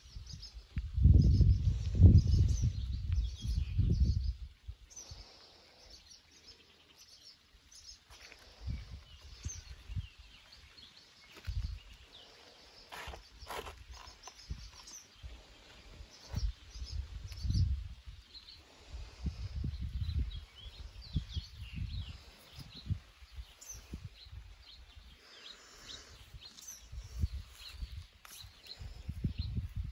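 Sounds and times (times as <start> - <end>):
small birds chirping: 0.0 - 29.9
low rumbles on microphone: 0.8 - 4.5.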